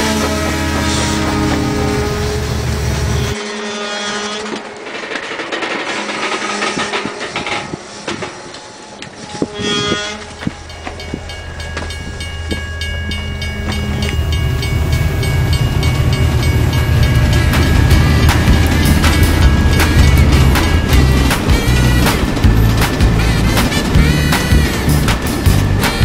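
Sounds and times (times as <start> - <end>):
train whistle blast: 0.0 - 4.6, 8.7 - 10.5, 23.1 - 26.0
steam train: 0.0 - 26.0
wheels clicking on rail joints: 0.0 - 26.0.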